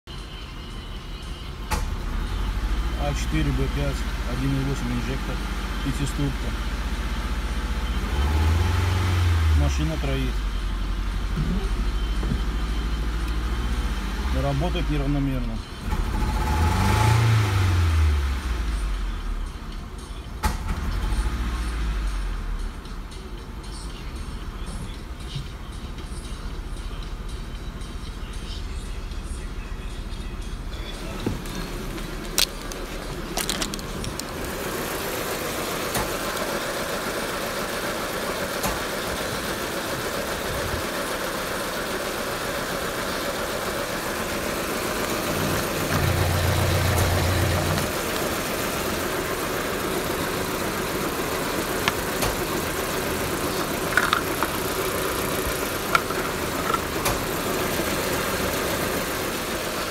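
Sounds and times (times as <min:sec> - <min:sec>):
car engine idling unevenly: 0:00.1 - 0:59.9
sharp clicks and knocks: 0:32.3 - 0:34.3, 0:51.8 - 0:52.6, 0:53.8 - 0:54.9.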